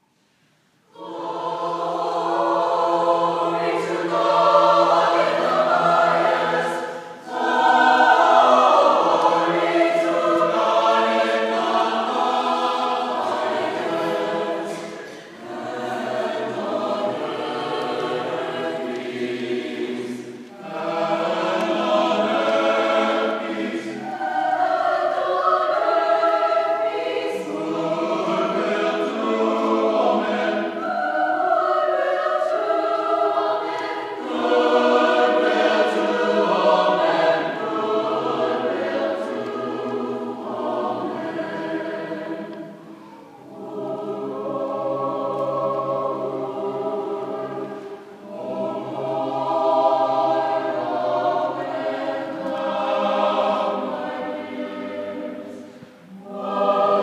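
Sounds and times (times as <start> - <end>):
choir singing a cappella: 0.0 - 57.0.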